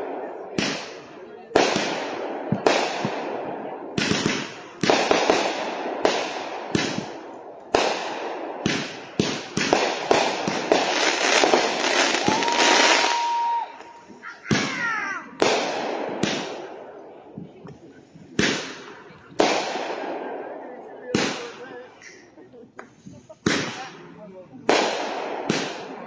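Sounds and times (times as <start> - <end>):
fireworks bangs echoing: 0.0 - 26.0
firework whistles: 11.2 - 14.2.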